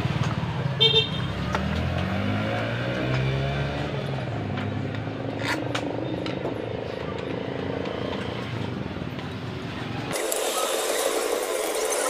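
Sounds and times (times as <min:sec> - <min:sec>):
vehicle engine passing: 0:01.4 - 0:08.8.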